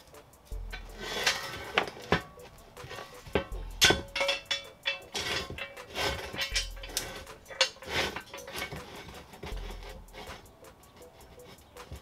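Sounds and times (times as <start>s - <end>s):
background music: 0.0s - 12.0s
sharp clinks and knocks: 0.1s - 12.0s
deep bass note: 3.5s - 3.9s.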